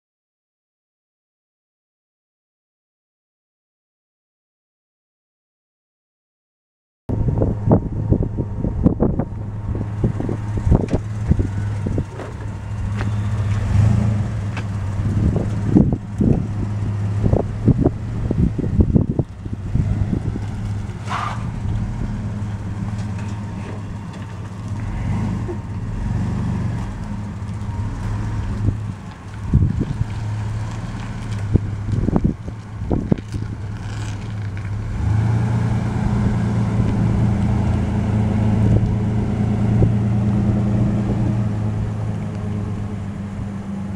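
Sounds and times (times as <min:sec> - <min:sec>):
wind thumps on microphone: 0:07.1 - 0:13.0, 0:14.6 - 0:22.0, 0:28.5 - 0:30.2, 0:31.3 - 0:33.6
truck engine running: 0:07.1 - 0:43.9.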